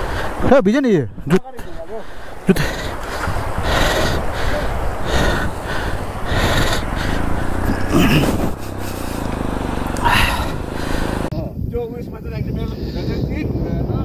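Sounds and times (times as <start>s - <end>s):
person breathing hard: 1.8s - 9.2s, 10.0s - 11.3s
motorcycle engine running: 3.0s - 11.3s.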